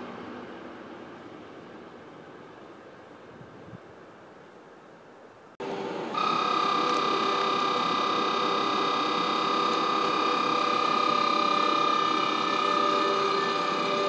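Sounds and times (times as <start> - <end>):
train running noise hiss: 0.0 - 14.0
locomotive electronics whine: 5.6 - 14.0.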